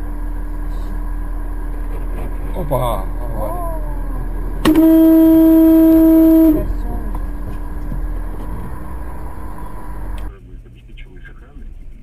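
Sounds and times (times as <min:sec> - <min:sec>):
car engine and road noise: 0:00.0 - 0:12.0
vehicle horn: 0:04.3 - 0:10.1.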